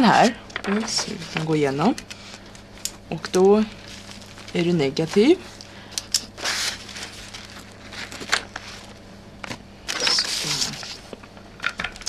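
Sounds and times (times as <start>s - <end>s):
paper rustling and crinkling: 0.1s - 5.6s, 6.2s - 11.4s.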